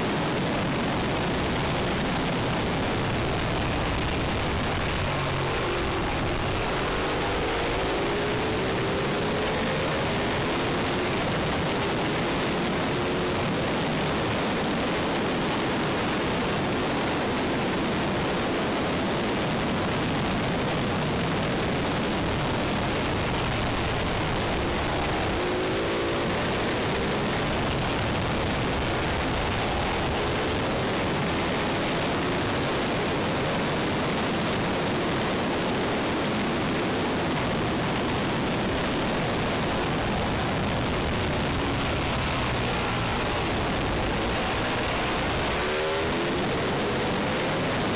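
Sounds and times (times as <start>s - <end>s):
motorcycle engine accelerating: 0.0s - 18.7s, 35.6s - 47.9s
heavy wind roar: 0.0s - 47.9s.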